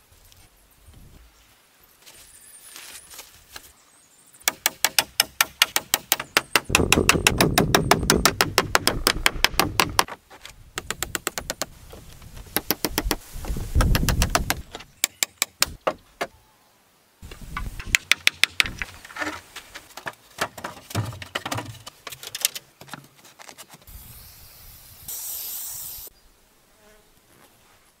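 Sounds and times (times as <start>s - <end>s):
hatchet chopping into log: 4.5s - 10.2s, 13.8s - 16.3s
wooden poles knocking and clattering: 4.5s - 13.2s, 17.2s - 23.8s
high hissing rasp: 23.9s - 26.1s.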